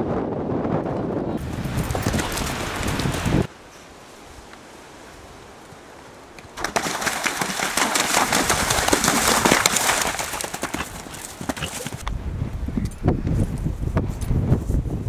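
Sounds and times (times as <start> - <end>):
galloping horse hoofbeats: 1.4 - 3.5, 6.6 - 12.1.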